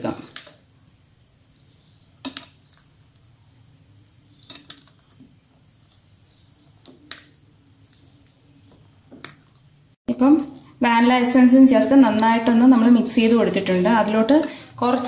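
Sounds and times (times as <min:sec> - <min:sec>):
spoon squishing cake batter: 0:01.4 - 0:10.8.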